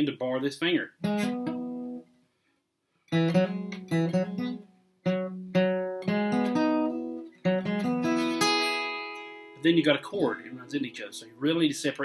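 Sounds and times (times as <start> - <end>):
acoustic guitar picked arpeggio: 1.0 - 2.1, 3.1 - 11.3.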